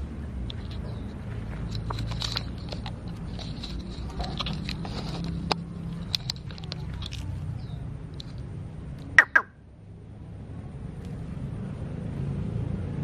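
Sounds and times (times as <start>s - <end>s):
leaves and stems rustling: 0.6s - 7.6s.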